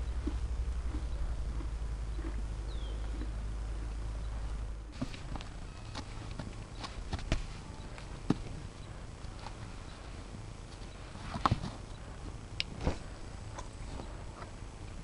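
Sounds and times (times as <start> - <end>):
horse hooves knocking on ground: 0.0 - 9.8
steady low rumble: 0.0 - 15.0.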